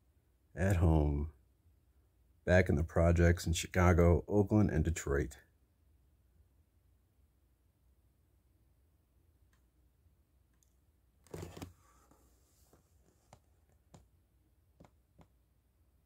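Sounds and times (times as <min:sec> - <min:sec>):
book rustling: 0:11.2 - 0:14.0.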